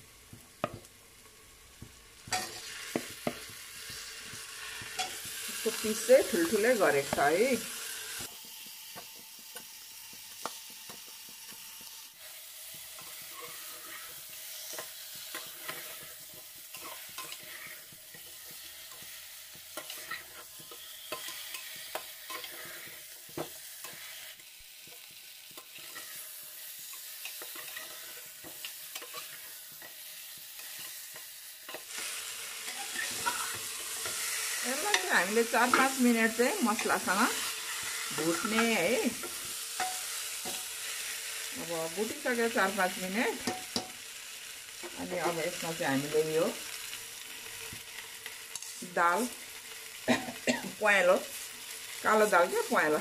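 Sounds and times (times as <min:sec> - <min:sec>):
meat sizzling in a pot: 0:00.0 - 0:53.0
metal spatula scraping a pot: 0:02.2 - 0:07.4, 0:12.8 - 0:24.3, 0:25.6 - 0:30.0, 0:31.7 - 0:41.0.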